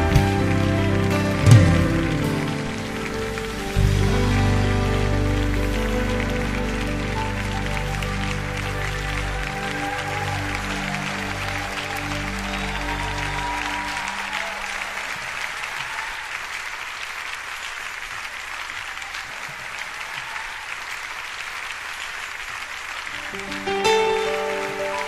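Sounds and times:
band's last notes: 0:00.0 - 0:14.8
audience applauding: 0:00.0 - 0:25.0.

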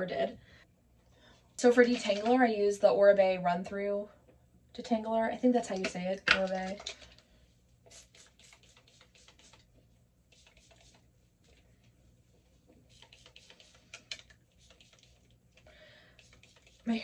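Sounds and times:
spray bottle spritzes: 0:07.9 - 0:09.7, 0:10.3 - 0:11.0, 0:12.9 - 0:15.3, 0:16.2 - 0:17.0.

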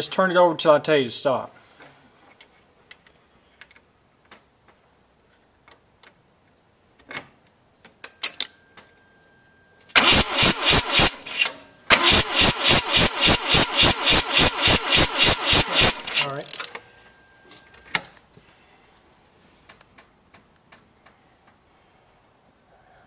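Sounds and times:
starter motor cranking engine: 0:10.0 - 0:16.8.

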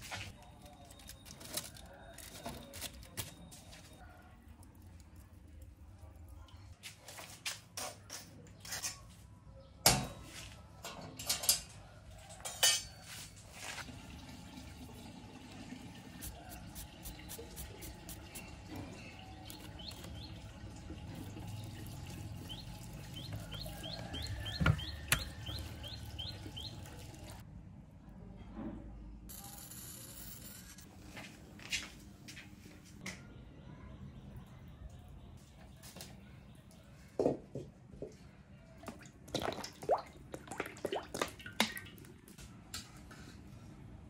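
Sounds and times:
steel dishes clinking: 0:12.4 - 0:13.1.

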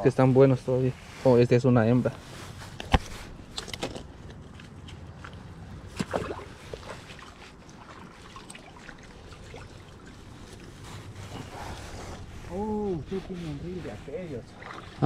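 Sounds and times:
rustling and clicks handling fish: 0:02.0 - 0:15.0
river water flowing: 0:05.0 - 0:15.0.

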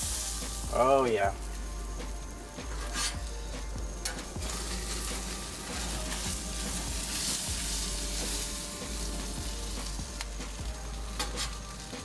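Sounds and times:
fish fillet sizzling on grill: 0:00.0 - 0:12.0
metal spatula scraping grates: 0:02.6 - 0:03.3, 0:04.0 - 0:09.1, 0:11.1 - 0:11.8.

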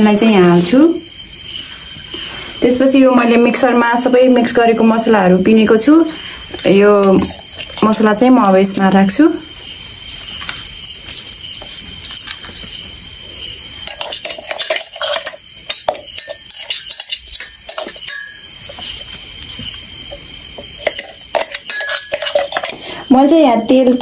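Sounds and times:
steady hiss with high whine: 0:00.1 - 0:04.6
metal spoon tapping metal jar: 0:13.8 - 0:18.9, 0:20.7 - 0:22.8.

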